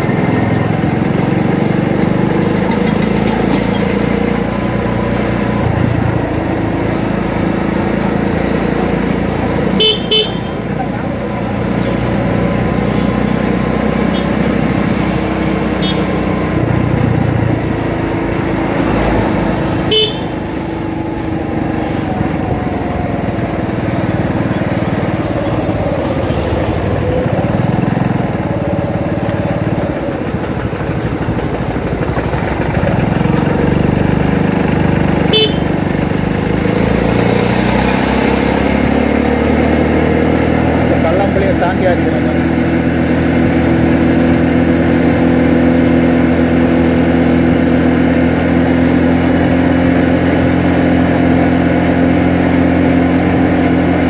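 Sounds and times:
motorcycle engine riding: 0.0 - 54.0
short vehicle horn toot: 9.8 - 10.5, 19.9 - 20.3, 35.3 - 35.7.

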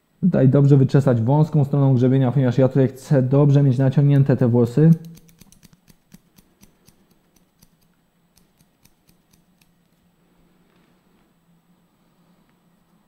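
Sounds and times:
scissors snipping hair: 4.8 - 9.8.

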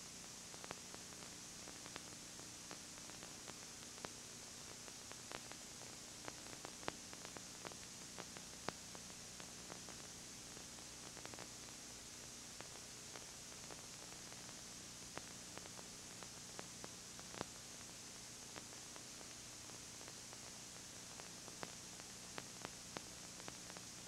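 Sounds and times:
tape hiss: 0.0 - 24.0.

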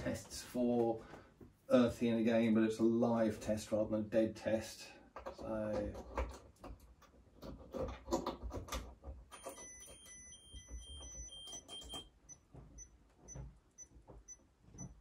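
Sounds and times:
electronic tester beeping: 9.4 - 15.0.

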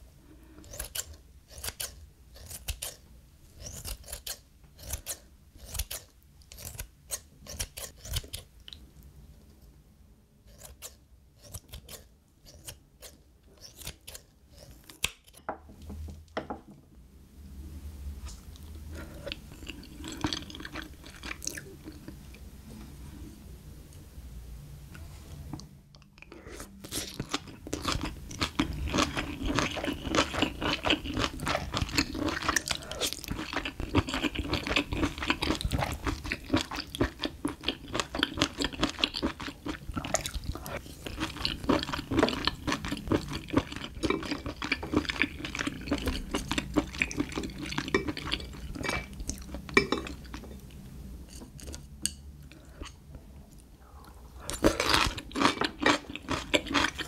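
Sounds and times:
wet crunchy chewing: 18.3 - 22.2, 26.2 - 50.4, 54.4 - 57.0.

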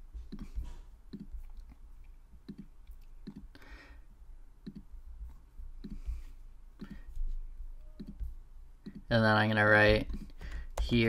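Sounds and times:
computer mouse clicking: 0.3 - 3.6, 4.6 - 4.9, 5.8 - 6.1, 6.8 - 7.1, 7.8 - 9.1.

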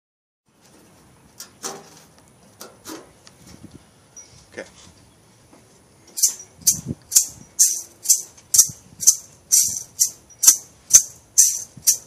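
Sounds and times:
shaker rattling a beat: 6.2 - 12.0.

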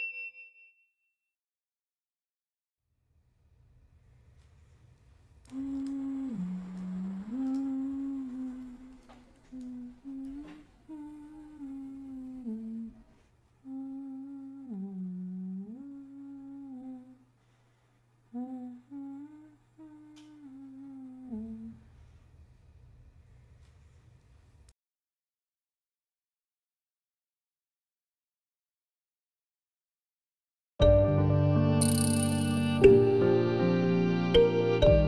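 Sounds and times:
woman humming a melody: 5.5 - 17.3, 18.3 - 21.9.

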